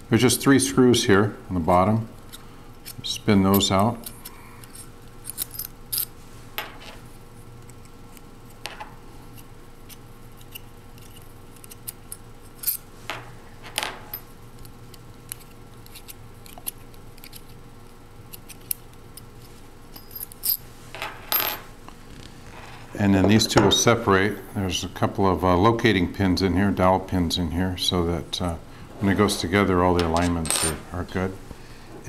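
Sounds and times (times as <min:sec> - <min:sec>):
metal parts set on wooden table: 0:28.9 - 0:30.9.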